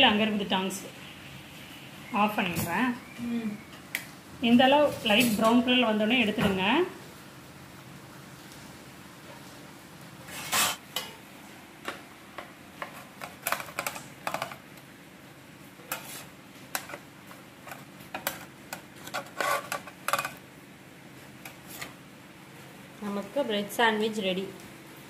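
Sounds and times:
metal tongs and cookware clattering: 17.7 - 20.4.

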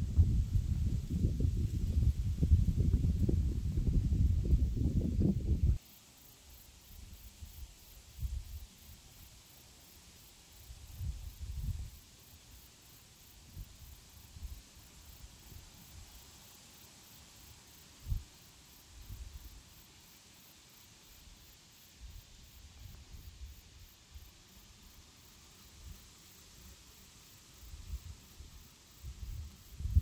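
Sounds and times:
wind rumble on microphone: 0.0 - 5.8, 10.9 - 12.0, 29.0 - 30.0
steady high hiss: 0.0 - 30.0.

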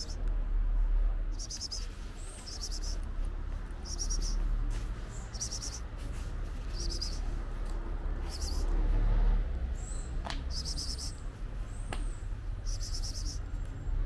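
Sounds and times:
insect chirping: 1.4 - 1.9, 2.5 - 3.0, 3.8 - 4.4, 5.3 - 5.8, 6.7 - 7.2, 8.3 - 8.7, 10.5 - 11.1, 12.6 - 13.4.

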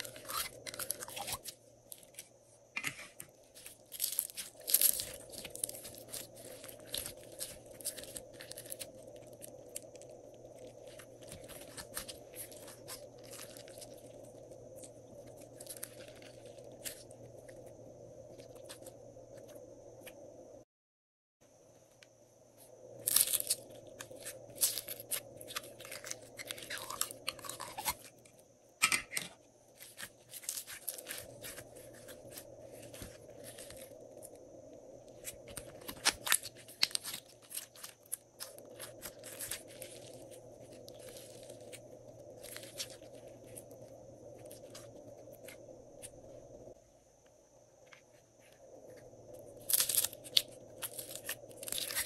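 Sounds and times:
slime crackling and popping: 3.6 - 14.2, 23.0 - 28.2, 35.2 - 41.8, 49.6 - 52.0.

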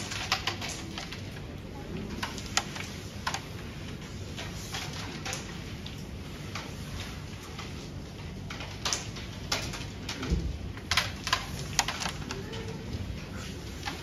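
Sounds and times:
carrom pieces clicking: 0.0 - 1.4, 2.0 - 3.6, 7.6 - 12.5.

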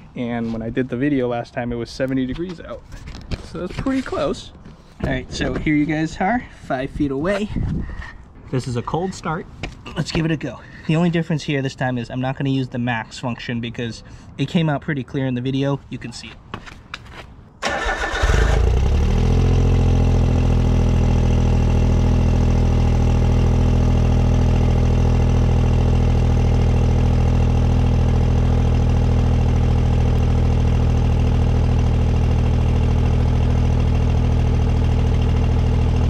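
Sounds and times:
car engine idling: 17.7 - 36.0.

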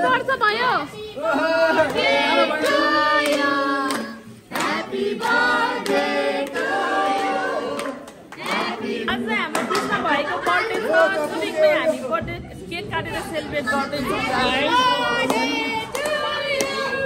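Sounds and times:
group singing: 1.0 - 12.2, 13.0 - 17.0
hand clapping: 2.6 - 8.8, 9.5 - 10.8, 15.2 - 17.0.

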